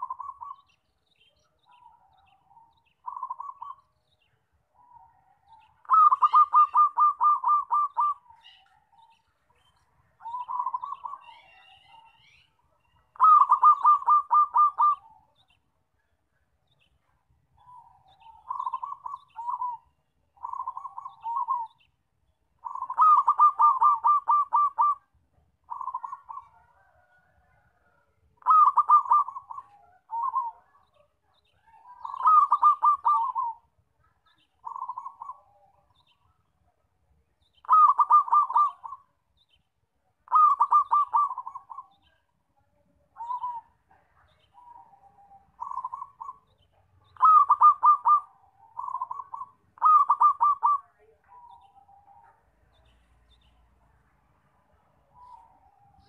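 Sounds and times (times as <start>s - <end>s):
dove cooing: 0.0s - 0.8s, 1.6s - 3.9s, 4.8s - 9.2s, 10.2s - 15.6s, 17.6s - 21.9s, 22.6s - 33.7s, 34.6s - 36.2s, 37.6s - 39.1s, 40.2s - 42.2s, 43.1s - 52.8s, 55.1s - 56.0s.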